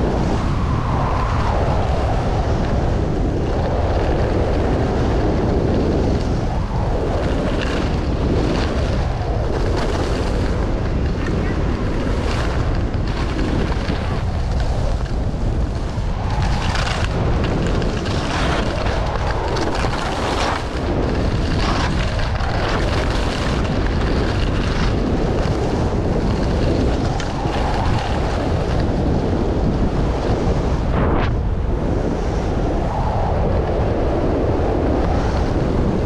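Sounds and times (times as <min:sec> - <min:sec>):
wind buffeting microphone: 0:00.0 - 0:36.0.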